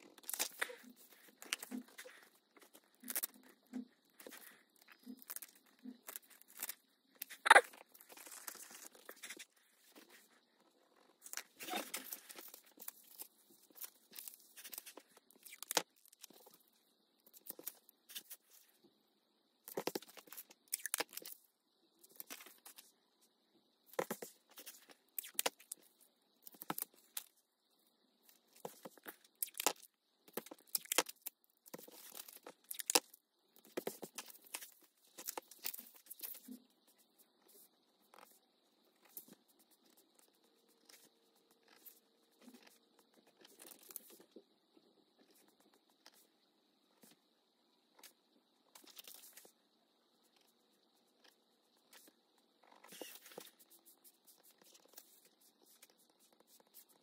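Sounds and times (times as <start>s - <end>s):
craft materials rustling and scraping: 0.0s - 16.6s, 52.6s - 56.9s.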